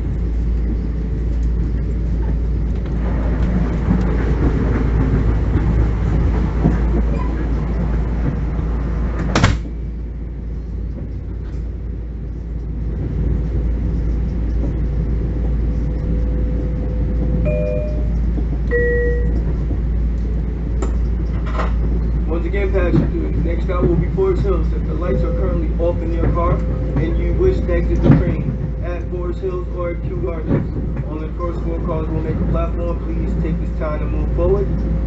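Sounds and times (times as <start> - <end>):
train running rumble: 0.0 - 35.0
two-note door chime: 17.5 - 19.4.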